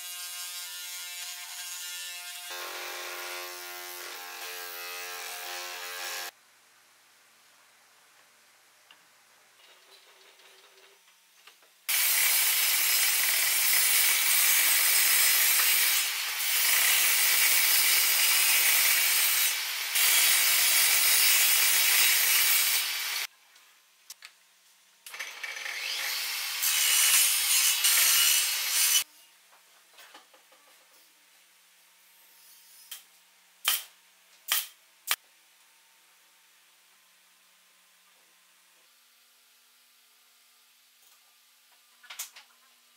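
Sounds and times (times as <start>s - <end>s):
table saw cutting wood: 0.0s - 6.3s, 11.9s - 23.3s, 25.2s - 29.0s.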